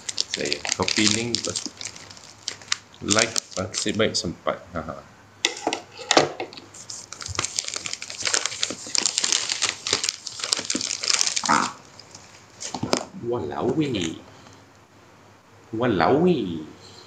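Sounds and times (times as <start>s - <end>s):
packaging crinkling and tearing: 0.0s - 4.0s, 6.6s - 13.1s.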